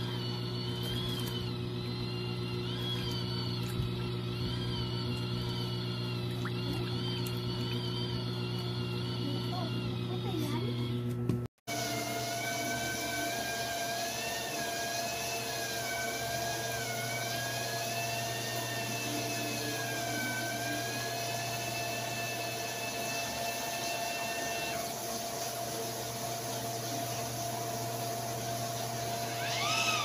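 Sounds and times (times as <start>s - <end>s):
washing machine motor hum: 0.0s - 30.0s
wavering motor whine: 0.0s - 30.0s.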